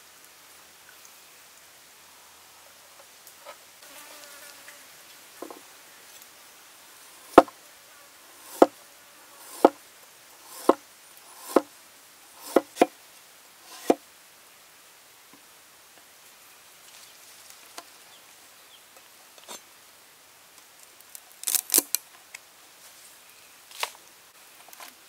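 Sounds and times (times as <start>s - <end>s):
faint insect buzz: 3.4s - 12.9s.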